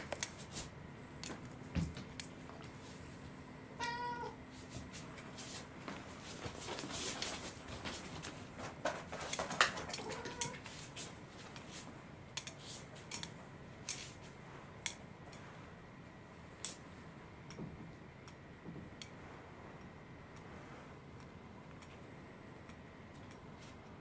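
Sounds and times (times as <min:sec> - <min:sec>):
cat meowing: 0:03.8 - 0:04.4, 0:10.0 - 0:10.6.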